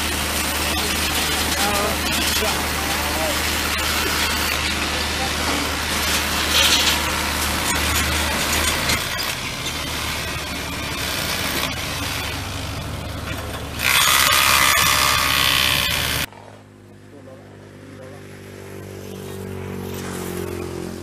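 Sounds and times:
metal clattering: 0:00.0 - 0:16.3
power tool whining: 0:00.0 - 0:16.3
engine running steadily: 0:00.0 - 0:21.0.

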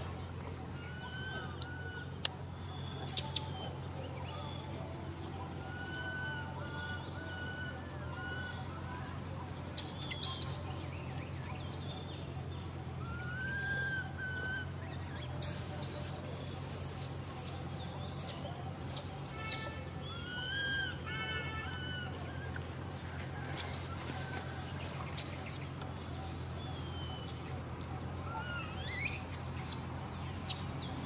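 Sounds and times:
high-pitched chirping calls: 0:00.0 - 0:22.6
steady low hum: 0:00.0 - 0:31.0.

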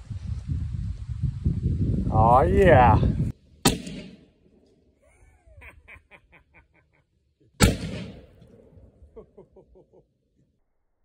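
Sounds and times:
small cannon bangs: 0:07.6 - 0:08.5.

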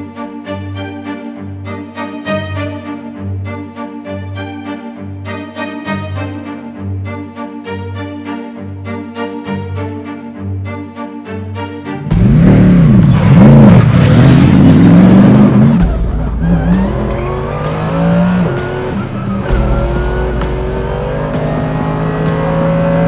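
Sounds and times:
racing car engine revving: 0:12.0 - 0:23.0.

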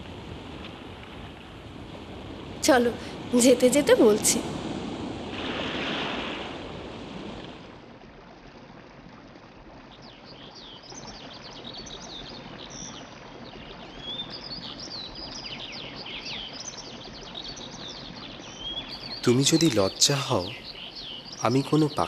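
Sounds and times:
birds chirping: 0:10.1 - 0:22.0.

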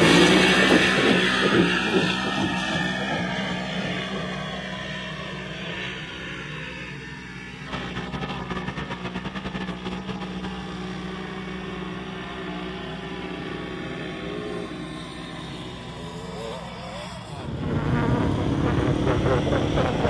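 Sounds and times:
utility vehicle engine droning: 0:00.0 - 0:20.0.

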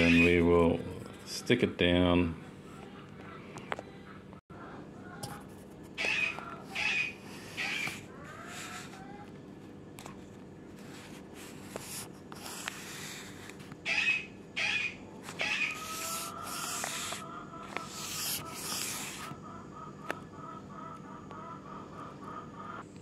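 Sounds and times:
paper scraping swishes: 0:15.2 - 0:19.3.

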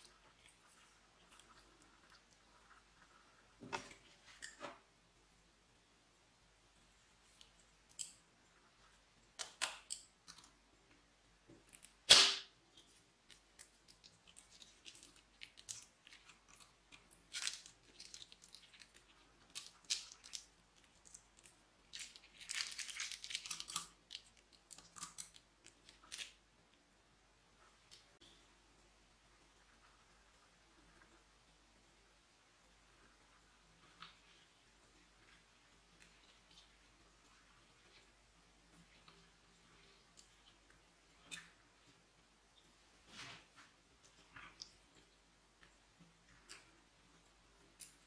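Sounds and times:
sharp snap: 0:12.1 - 0:12.5.

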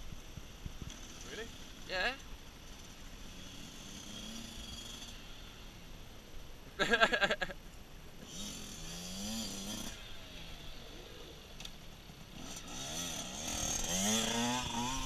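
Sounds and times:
dirt bike engine revving: 0:00.6 - 0:05.8, 0:08.2 - 0:15.0.

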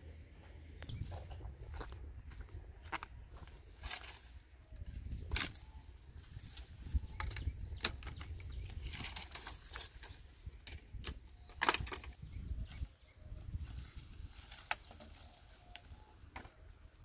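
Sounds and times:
brush and twigs rustling: 0:00.4 - 0:17.0
footsteps on loose stones: 0:00.8 - 0:12.7.

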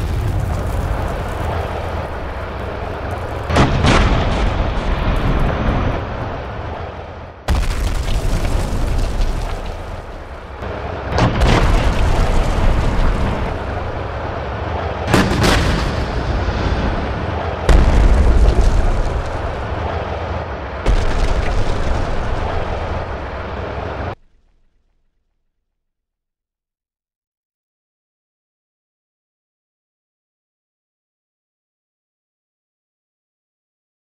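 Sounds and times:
shells bursting against buildings: 0:00.0 - 0:06.2, 0:07.5 - 0:14.2, 0:15.0 - 0:20.2, 0:20.8 - 0:24.8
tank gun blasts: 0:02.1 - 0:05.9, 0:07.5 - 0:14.1, 0:15.0 - 0:19.6.

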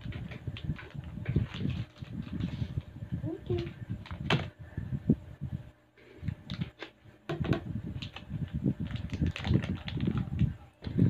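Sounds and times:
plastic packet crinkling: 0:00.0 - 0:02.8, 0:08.0 - 0:10.5.

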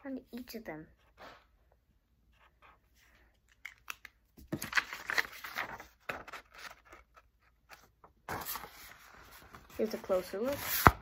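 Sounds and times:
paper rustling and crinkling: 0:03.6 - 0:11.0.

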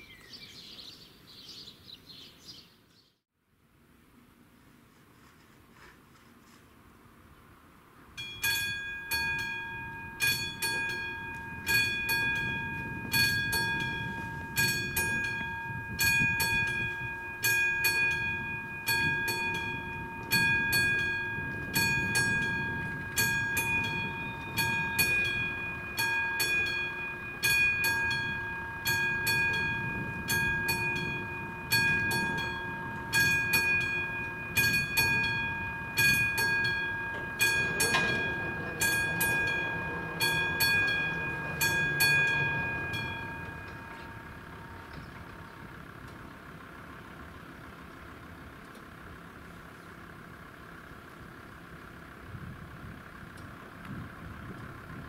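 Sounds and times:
level crossing warning bell ringing: 0:08.1 - 0:47.7.

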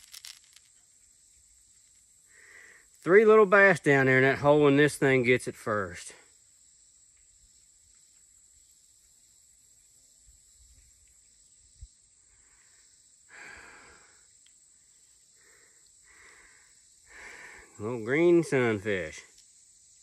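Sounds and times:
soft rustle: 0:00.0 - 0:02.1
high insect hum: 0:00.0 - 0:20.0.

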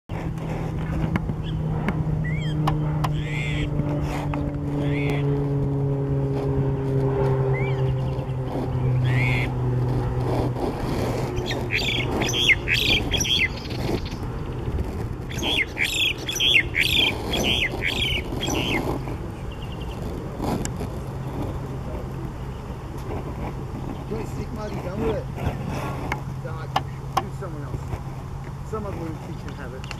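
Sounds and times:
steady low hum: 0:00.1 - 0:29.9
myna chirping: 0:02.2 - 0:03.7, 0:04.7 - 0:05.3, 0:07.5 - 0:09.6, 0:11.3 - 0:20.1.

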